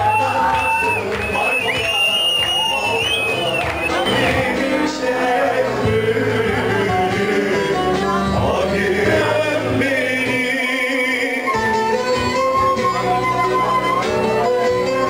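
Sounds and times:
man singing into microphone: 0.0 - 12.1
dance band music: 0.0 - 15.0
clarinet melody: 11.2 - 15.0.

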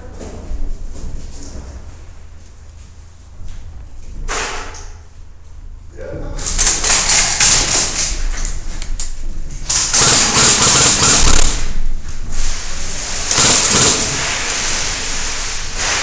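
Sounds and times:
airsoft rifle firing full auto: 6.6 - 8.1, 9.7 - 11.7, 13.3 - 14.5.

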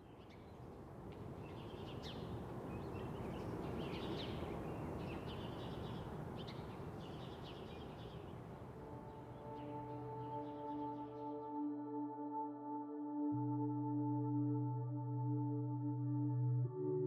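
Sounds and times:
birds chirping: 1.5 - 11.6
soft sustained music tones: 7.6 - 17.0.

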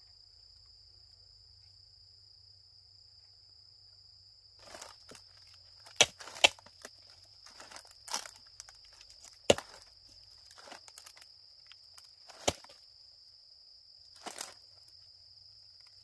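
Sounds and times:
footsteps: 4.6 - 5.2, 5.9 - 6.9, 7.5 - 8.4, 9.2 - 9.9, 14.2 - 14.6
rustling on dry leaf litter: 4.6 - 11.2, 12.0 - 12.8, 14.2 - 14.6.

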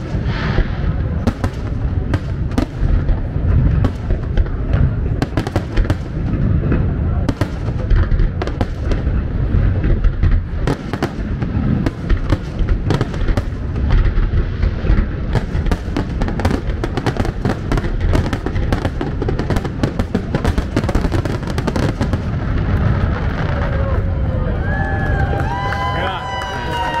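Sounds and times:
fireworks booming: 0.0 - 25.7
fireworks bangs and crackles: 0.0 - 27.0.

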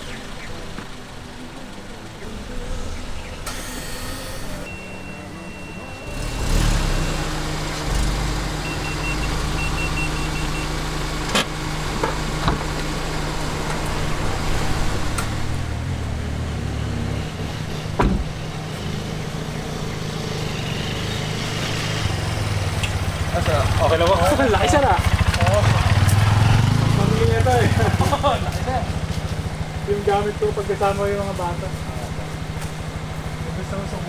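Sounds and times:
car engine idling: 0.0 - 34.0
quick high beeps: 3.4 - 6.5.

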